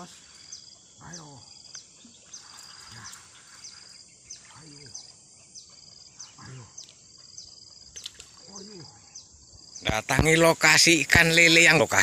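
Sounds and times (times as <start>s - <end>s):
insects droning: 0.0s - 12.0s
low falling animal call: 6.2s - 6.8s.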